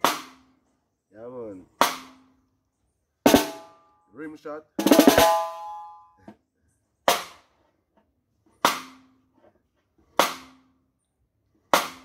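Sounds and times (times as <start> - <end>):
snare drum rim shots: 3.3 - 3.7.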